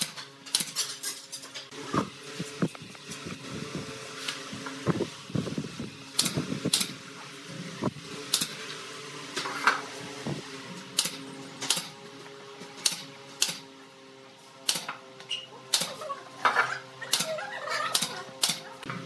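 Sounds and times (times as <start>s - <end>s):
pneumatic nail gun firing: 0.0s - 2.8s, 6.1s - 7.0s, 8.2s - 9.9s, 10.9s - 12.0s, 12.8s - 13.7s, 14.6s - 15.0s, 15.7s - 18.9s.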